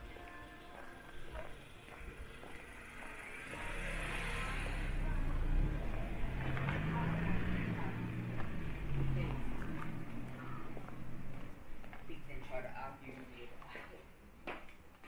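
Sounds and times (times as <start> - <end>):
vehicle engine running: 1.4 - 12.0.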